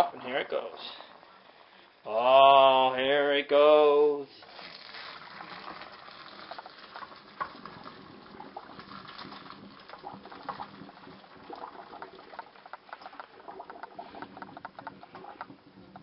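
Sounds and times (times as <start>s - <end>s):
water pouring into colander: 4.4s - 16.0s
small clicks and taps: 11.5s - 16.0s.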